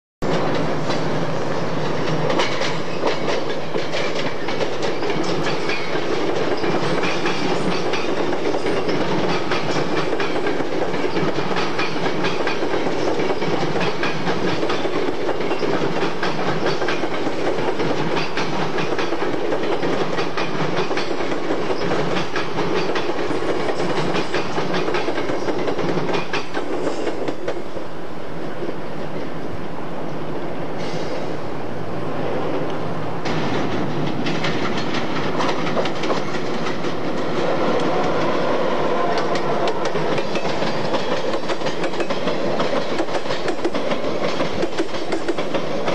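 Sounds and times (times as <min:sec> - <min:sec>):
train wheels clickety-clack: 0:00.2 - 0:28.0, 0:30.8 - 0:31.4, 0:32.6 - 0:45.9.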